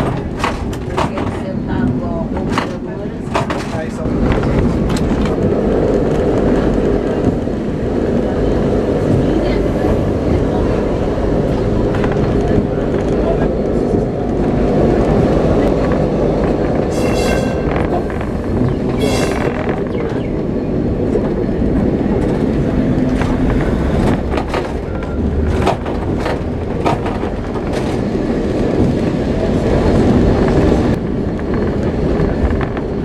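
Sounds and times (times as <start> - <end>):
tram wheels rumbling on rails: 0.0 - 33.0
high-pitched wheel squeals: 16.9 - 17.9.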